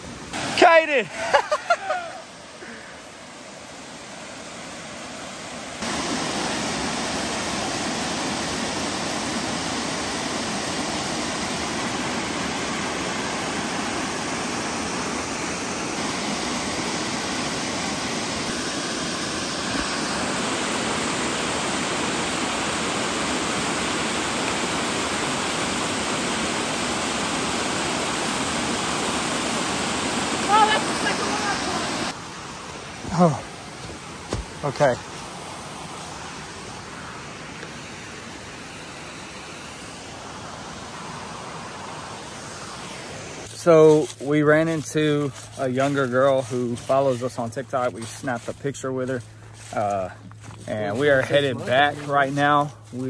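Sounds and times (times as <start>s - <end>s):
water rushing down waterfall: 0.0s - 44.8s.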